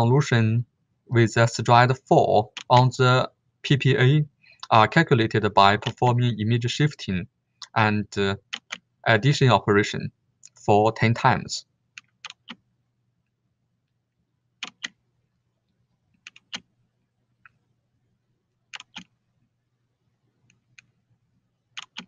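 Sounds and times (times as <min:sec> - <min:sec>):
faint low hum: 0:00.0 - 0:08.4.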